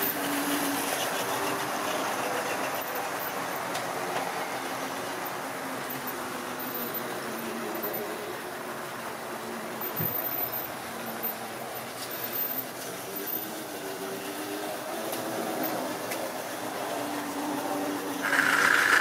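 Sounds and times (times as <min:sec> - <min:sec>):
model train whirring on track: 0:00.0 - 0:19.0.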